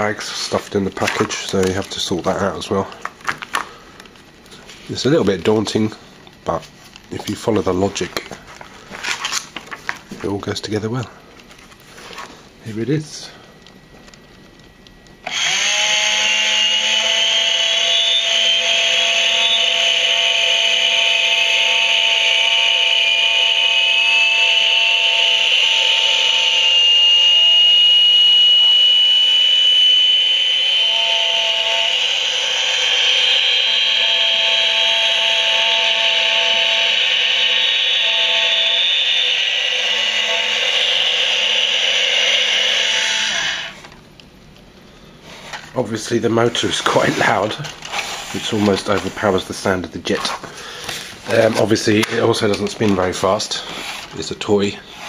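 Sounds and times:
high whine rising in pitch: 0.0 - 3.0, 14.6 - 44.0
electric motor whirring: 15.2 - 44.0.

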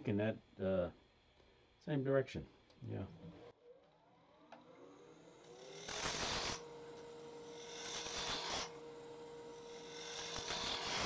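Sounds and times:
lathe motor hum: 2.6 - 11.0
gouge cutting spinning wood: 4.4 - 11.0.

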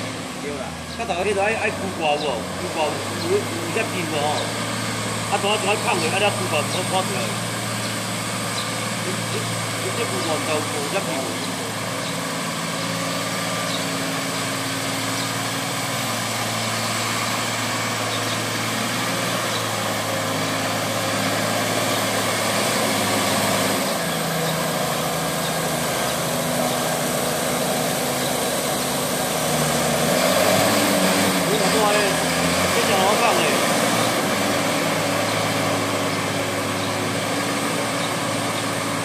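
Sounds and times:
tractor diesel engine running: 0.0 - 39.0.

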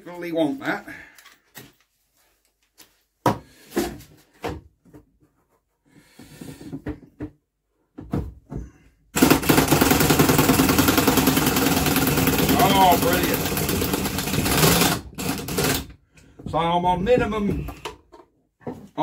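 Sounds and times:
impact wrench hammering: 9.2 - 15.8.

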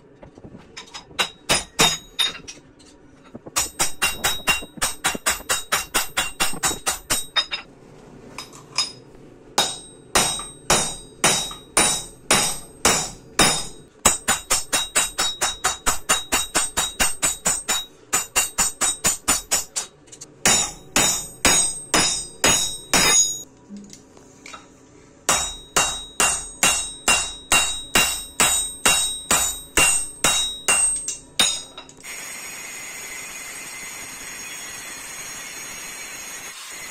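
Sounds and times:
hammer ringing on steel anvil: 9.6 - 19.8, 20.4 - 23.4, 25.3 - 31.9.

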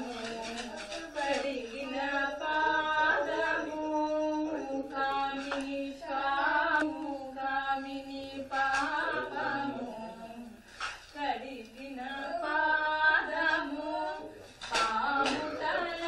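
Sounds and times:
voices chanting in unison: 0.0 - 10.6, 11.2 - 16.0.

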